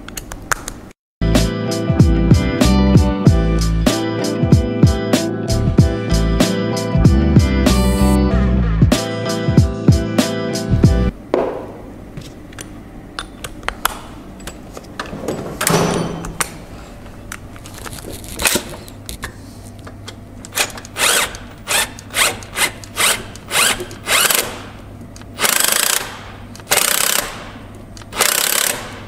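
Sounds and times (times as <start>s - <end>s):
cordless power tool running: 21.0s - 24.7s.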